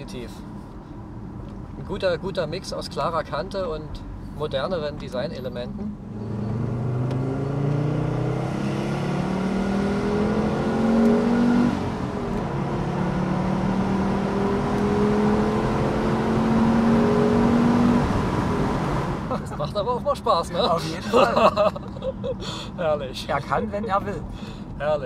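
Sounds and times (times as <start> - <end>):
car engine accelerating: 5.5 - 19.5.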